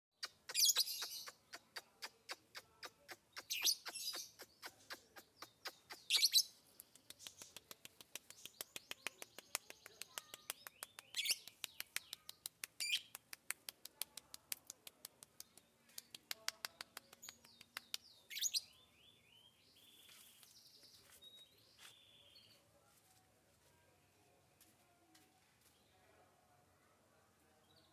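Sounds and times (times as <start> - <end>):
lovebird chirping: 0.2 - 13.2, 15.4 - 22.7.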